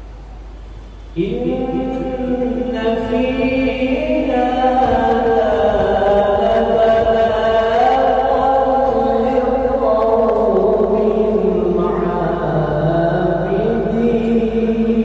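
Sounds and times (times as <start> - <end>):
man chanting into a microphone: 1.1 - 15.0.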